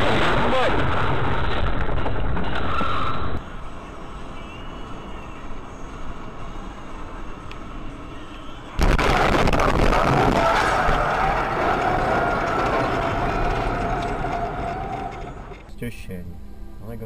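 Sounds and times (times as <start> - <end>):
car road and engine noise: 1.8 - 8.8
car crash: 8.8 - 15.6.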